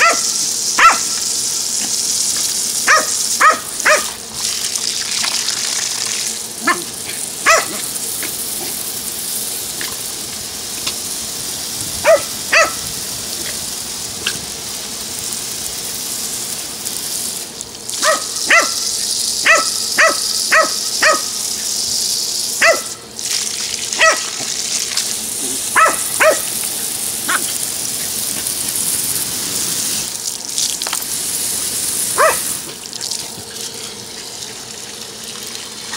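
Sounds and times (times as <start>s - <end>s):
dog barking: 0.0s - 1.2s, 2.8s - 4.2s, 6.6s - 7.9s, 12.0s - 12.8s, 18.0s - 21.4s, 22.6s - 23.0s, 24.0s - 24.4s, 25.7s - 26.5s, 27.2s - 27.5s, 32.2s - 32.6s
water spraying from hose: 0.0s - 35.9s.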